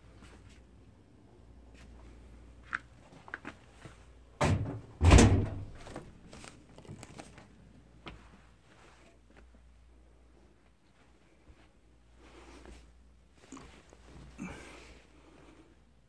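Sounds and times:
door clicks and knocks: 4.4s - 5.8s
door thumping: 4.4s - 5.8s.

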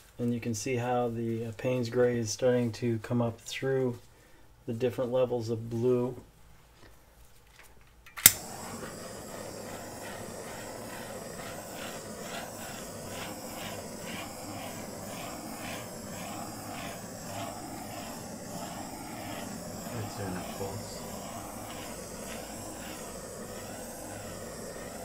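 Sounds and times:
butane torch hissing: 8.2s - 25.0s.

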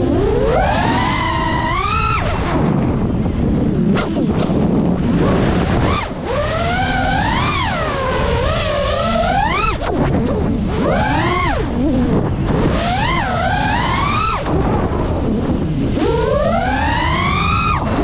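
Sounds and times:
drone motors whining: 0.0s - 18.0s
wind rushing on microphone: 0.0s - 18.0s.

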